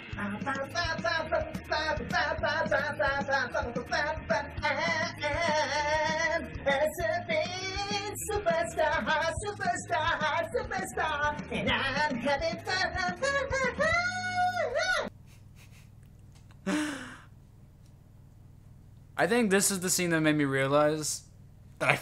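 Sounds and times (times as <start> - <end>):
high singing voice: 0.0 - 15.1.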